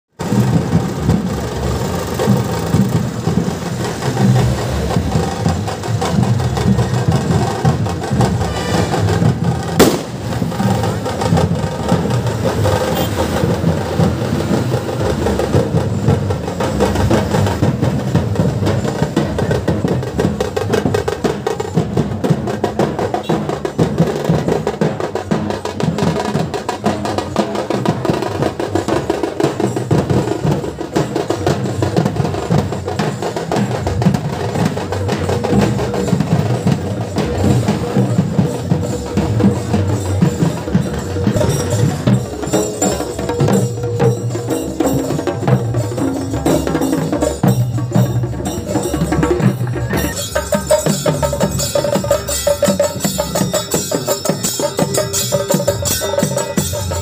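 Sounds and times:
fast processional drumming: 0.1s - 57.0s
sharp crack: 9.8s - 10.5s.

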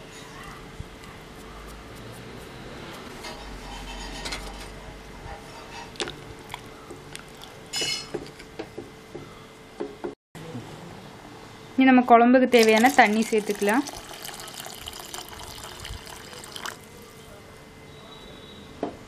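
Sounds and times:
wooden spatula scraping metal pot: 3.1s - 4.7s.

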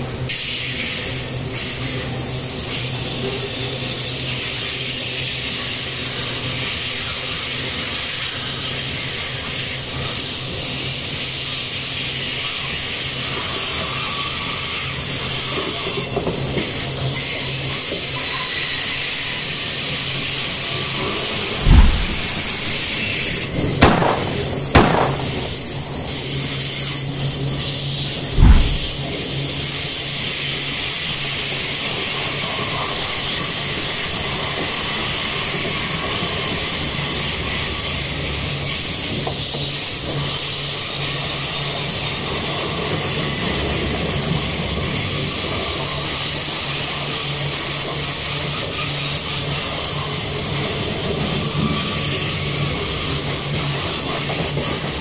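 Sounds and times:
steel wheels rumbling on rail: 12.2s - 55.0s.

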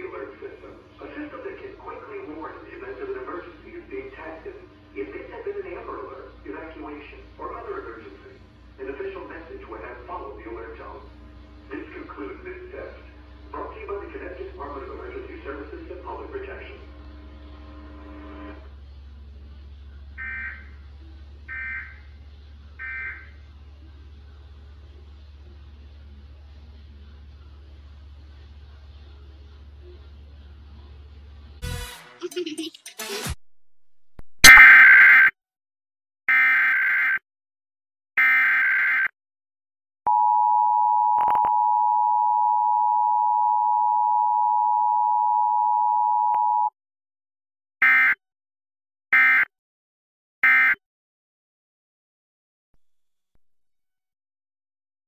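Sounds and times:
steady low hum: 0.0s - 31.6s, 40.1s - 46.7s
two-tone alert beep: 34.4s - 35.3s, 40.1s - 46.7s.

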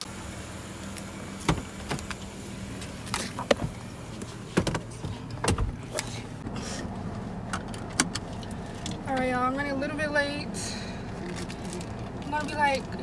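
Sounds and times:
car door and seat clunks: 1.4s - 6.2s.

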